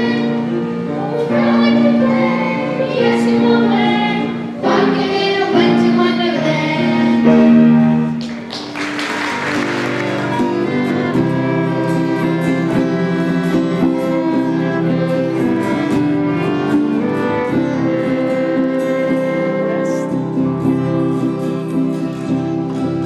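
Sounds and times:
violin ensemble playing held notes: 0:07.1 - 0:23.0.

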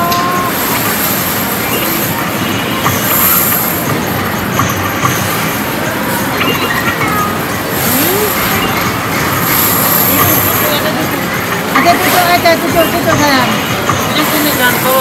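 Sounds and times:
indoor amusement area din: 0:00.0 - 0:15.0
short electronic tones: 0:06.3 - 0:10.8.

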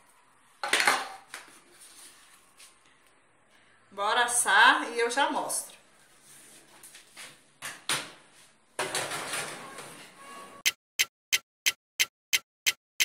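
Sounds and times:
clock-like ticking: 0:10.6 - 0:12.8.

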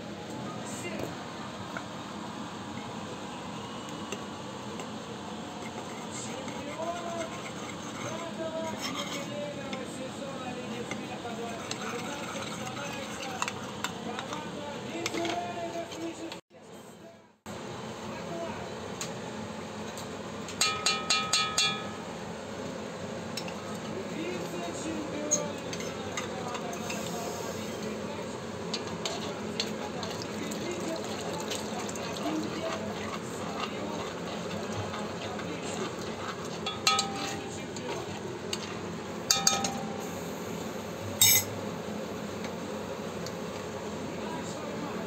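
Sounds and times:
metal spoon scraping a pan: 0:05.5 - 0:09.9, 0:10.7 - 0:14.4, 0:28.7 - 0:39.8, 0:41.2 - 0:41.5
wooden spoon tapping metal pan: 0:20.6 - 0:21.9.

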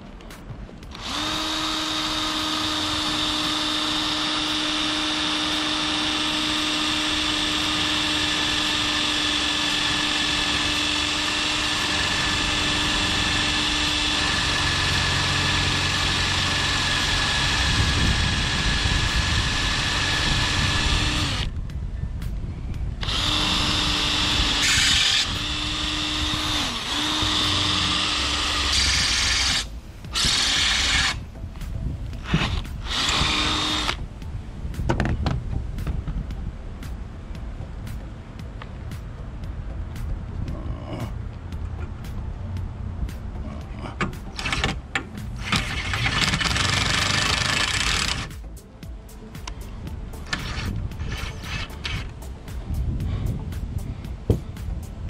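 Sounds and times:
cordless drill drilling into metal: 0:00.9 - 0:21.5, 0:23.0 - 0:31.2, 0:32.2 - 0:34.0, 0:45.4 - 0:48.3.

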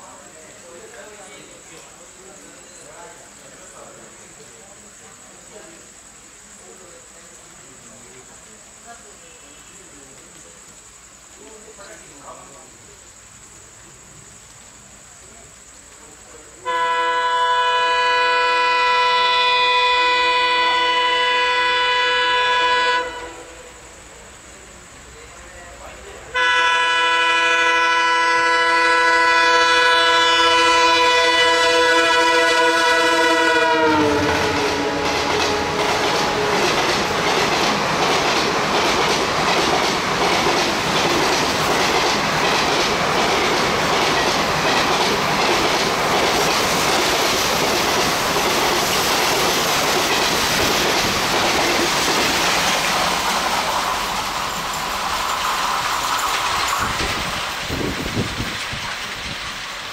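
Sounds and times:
locomotive horn blast: 0:16.6 - 0:23.7, 0:26.3 - 0:37.3
train rushing past: 0:16.6 - 0:59.9.

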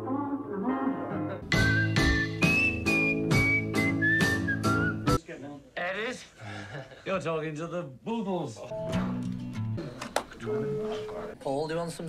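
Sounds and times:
strummed guitar chords: 0:00.9 - 0:05.2, 0:08.7 - 0:09.8
person whistling a melody: 0:01.5 - 0:05.2.

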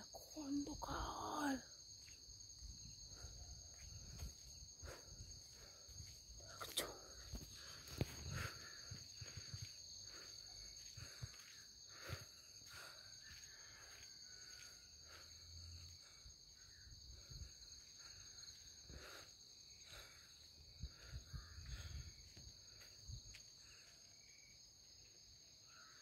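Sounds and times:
crickets trilling: 0:00.0 - 0:26.0.

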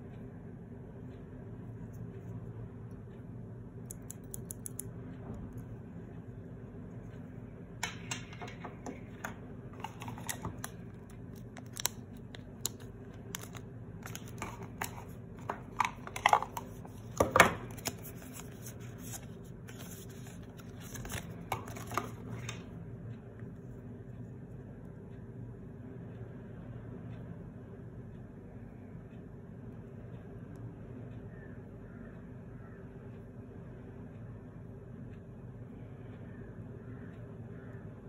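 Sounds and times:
steady low hum: 0:00.0 - 0:38.0
handling clicks taps and rustles: 0:07.8 - 0:22.6.

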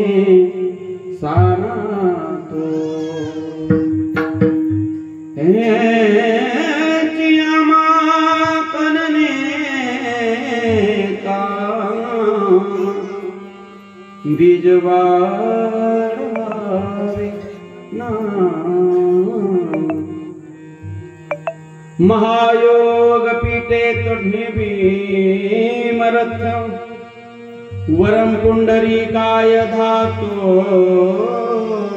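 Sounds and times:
man singing slow devotional melody: 0:00.0 - 0:31.9.

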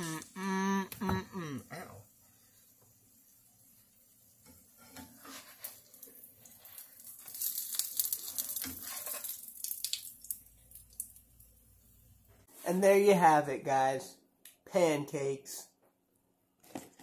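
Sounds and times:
pancake sizzling in a pan: 0:01.4 - 0:12.6.

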